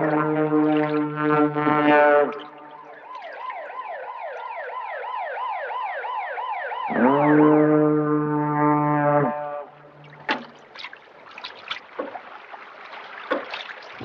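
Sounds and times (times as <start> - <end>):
deep ship's horn: 0.0 - 2.8, 6.9 - 10.0
warbling siren-like tone: 0.0 - 10.2.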